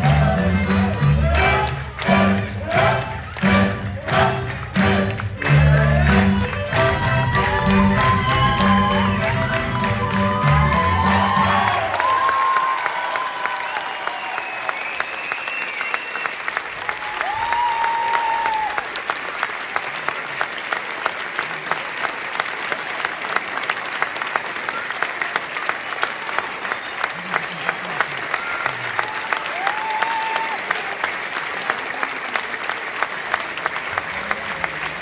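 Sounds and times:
audience clapping in unison: 0.0s - 35.0s
high whistle: 13.7s - 16.5s.

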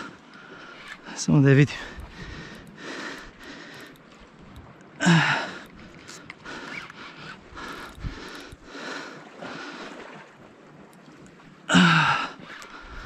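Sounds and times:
light clicks: 0.0s - 8.7s.

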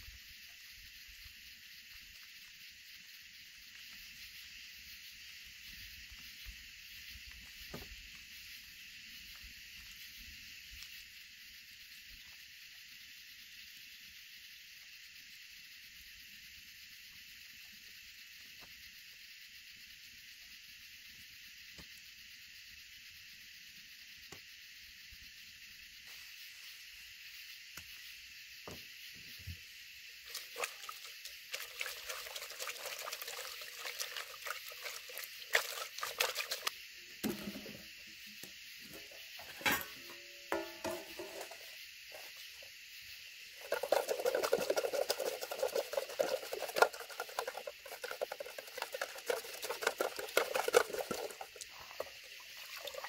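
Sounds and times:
water sloshing in pot: 30.2s - 37.9s, 38.9s - 42.3s, 43.5s - 53.0s.

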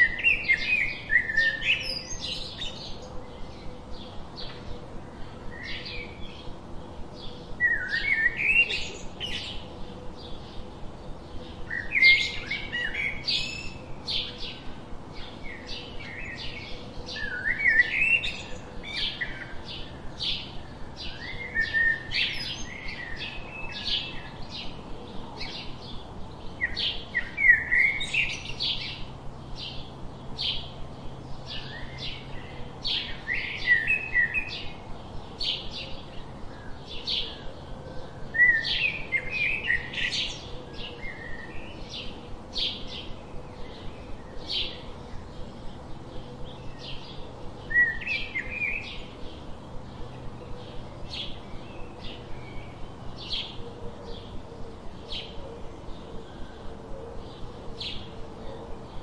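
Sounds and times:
bird warbling song: 0.0s - 59.0s
songbirds chirping: 0.0s - 59.0s.

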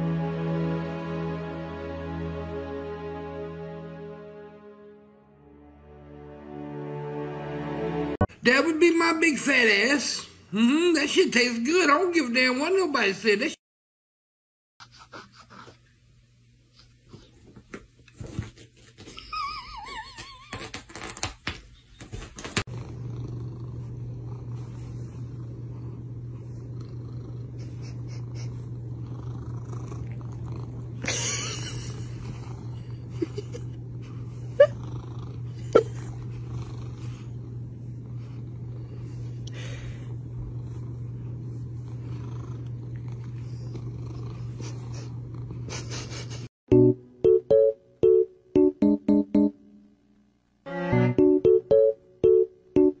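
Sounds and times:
cat purring: 22.7s - 45.9s.

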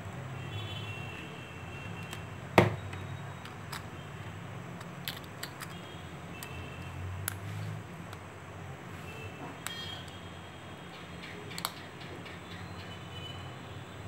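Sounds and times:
plastic clicks and taps: 11.5s - 11.9s.

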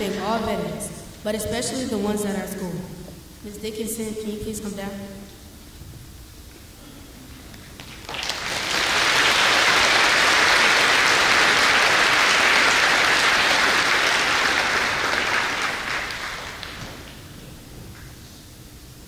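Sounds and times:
audience applauding: 7.7s - 17.2s.

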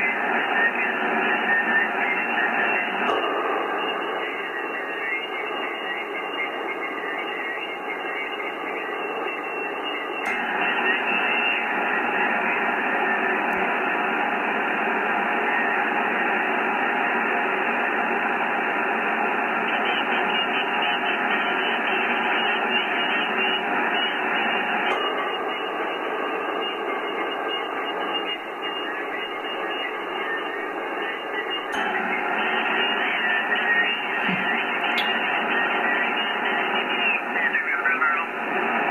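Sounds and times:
radio static hiss: 0.0s - 38.9s.

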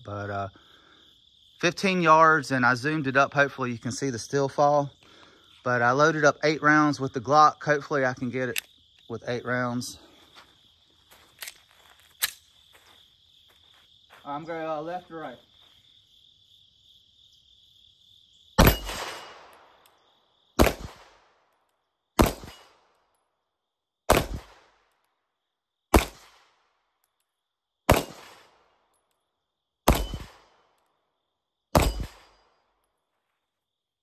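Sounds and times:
pistol shots: 18.6s - 19.8s, 20.6s - 21.4s, 22.2s - 22.9s, 24.1s - 24.8s, 25.9s - 26.6s, 27.9s - 28.7s, 29.8s - 30.7s, 31.7s - 32.5s.

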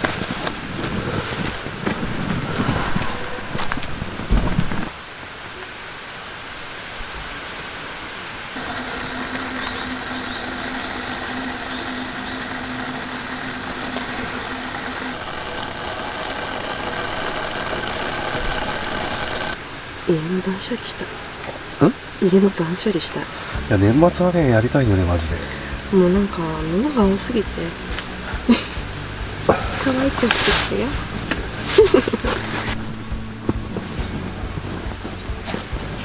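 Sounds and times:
low mechanical hum: 8.6s - 20.4s.

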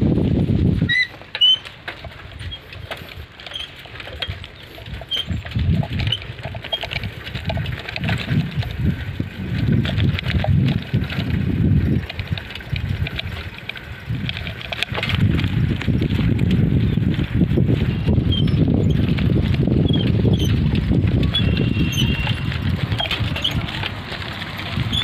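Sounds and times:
wind buffeting microphone: 0.0s - 1.2s, 1.8s - 25.0s.

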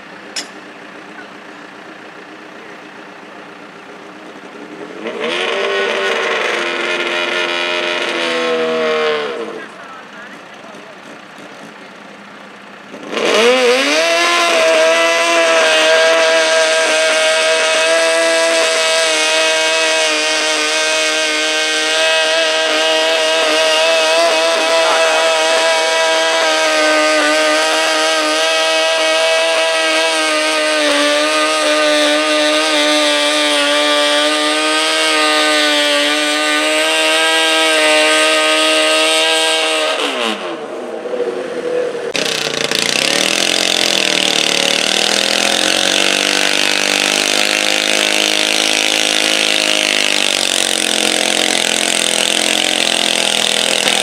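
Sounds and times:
garden tractor engine revving: 4.8s - 11.8s, 12.9s - 40.6s, 42.1s - 54.0s
second tractor engine wavering pitch: 21.4s - 30.1s.

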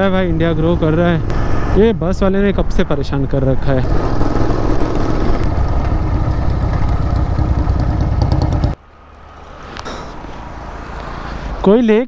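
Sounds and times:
road noise: 0.0s - 12.0s
motorcycle engine running: 3.8s - 8.8s.

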